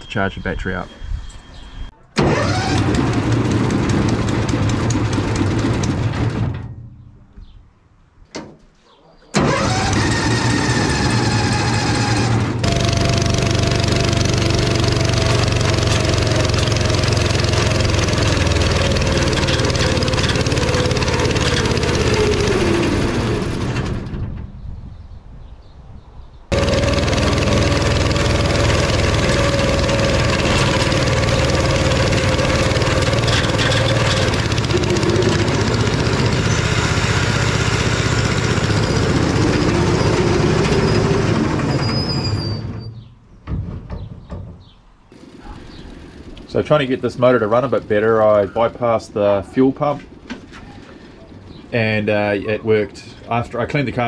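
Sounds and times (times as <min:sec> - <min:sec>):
v-twin engine running: 0:02.3 - 0:06.4, 0:09.4 - 0:24.0, 0:26.5 - 0:42.1.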